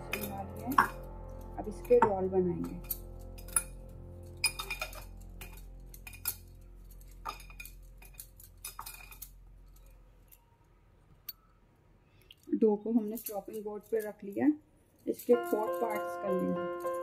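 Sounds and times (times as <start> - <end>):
bangles clinking on glass bowl: 0.0 - 10.0, 15.0 - 17.0.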